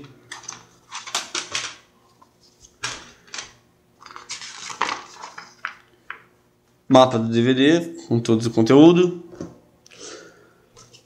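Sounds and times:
paper rustling: 0:00.3 - 0:05.8.

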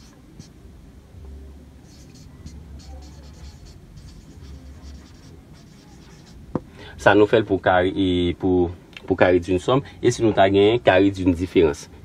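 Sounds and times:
marker pen writing on whiteboard: 0:00.0 - 0:00.5, 0:01.8 - 0:06.4
low steady hum: 0:00.0 - 0:12.0.

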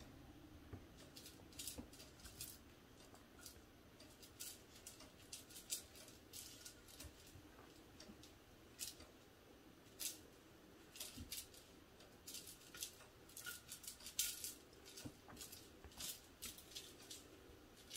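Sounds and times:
kitten claws clicking and scratching: 0:00.9 - 0:09.2, 0:09.8 - 0:17.9.

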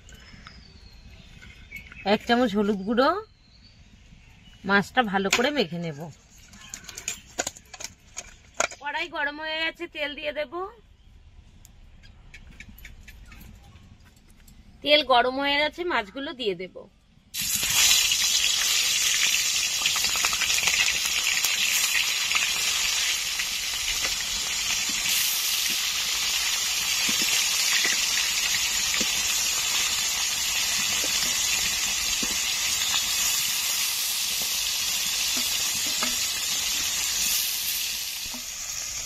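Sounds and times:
fish sizzling in hot oil: 0:17.4 - 0:39.0.

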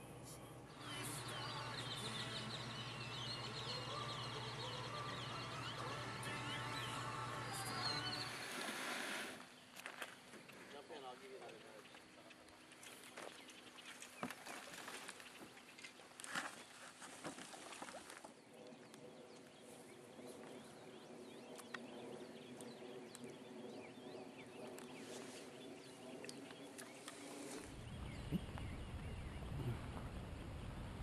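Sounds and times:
light ticks and chirps: 0:18.6 - 0:25.3, 0:26.0 - 0:30.1.

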